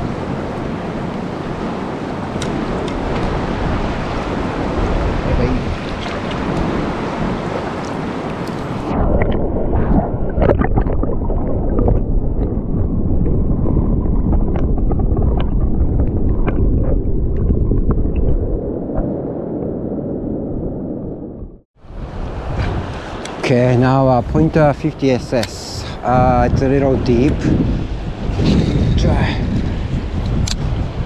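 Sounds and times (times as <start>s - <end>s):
muffled river water rushing: 0.0s - 19.9s, 21.8s - 31.0s
small clicks and gurgles: 14.0s - 18.5s.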